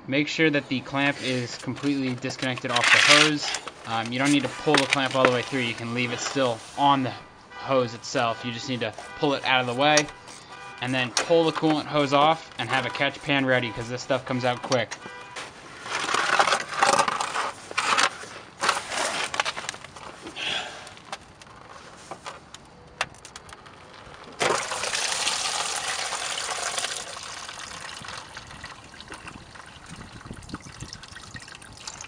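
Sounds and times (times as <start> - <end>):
hose handling noises: 0.7 - 7.2, 7.9 - 28.2
coolant splashing into plastic pan: 24.4 - 32.0.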